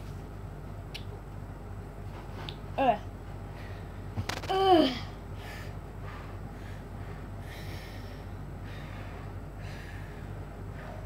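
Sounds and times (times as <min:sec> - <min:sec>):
boy breathing hard through mouth: 0:05.4 - 0:11.0.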